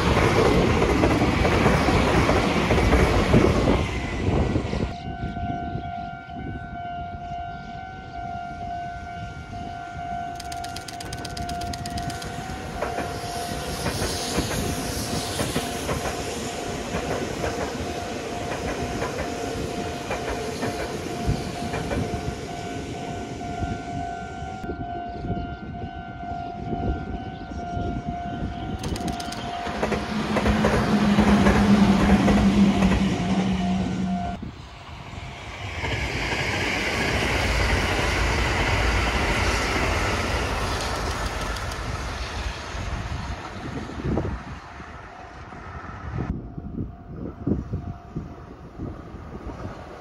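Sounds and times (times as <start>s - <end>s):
train passing on track: 0.0s - 50.0s
low train horn tone: 4.0s - 10.4s, 30.2s - 34.5s
steady high tone: 21.0s - 40.1s.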